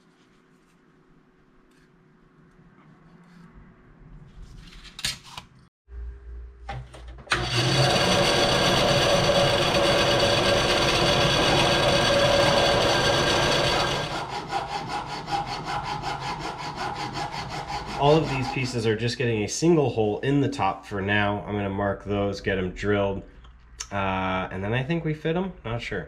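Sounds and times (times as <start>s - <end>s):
file rasping on metal: 7.5s - 18.9s.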